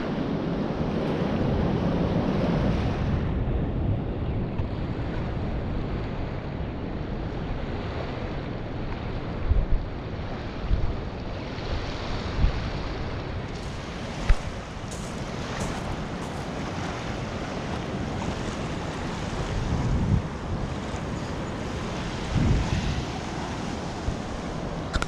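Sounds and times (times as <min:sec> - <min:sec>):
wind rumbling on microphone: 0:00.0 - 0:25.0
waves washing onto pebble shore: 0:13.5 - 0:25.0.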